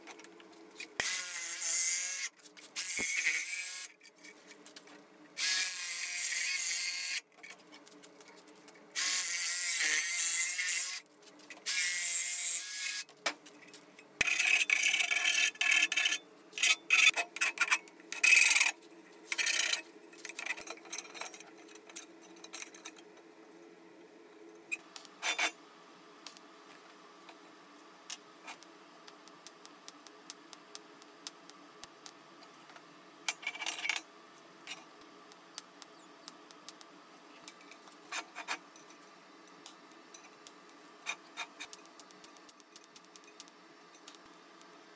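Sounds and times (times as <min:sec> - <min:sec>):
electric metal cutter buzzing: 0:01.0 - 0:03.9, 0:05.4 - 0:07.2, 0:09.0 - 0:11.0, 0:11.7 - 0:13.1.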